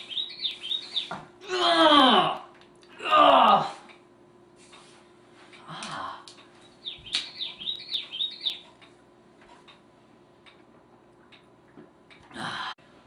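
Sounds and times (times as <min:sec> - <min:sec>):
high squeaky chirps: 0:00.0 - 0:01.2, 0:06.6 - 0:08.7.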